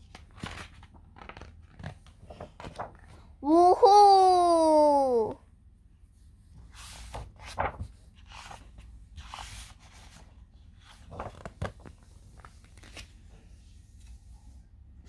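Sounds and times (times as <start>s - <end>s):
book pages rustling: 0.0s - 3.3s, 6.6s - 14.2s.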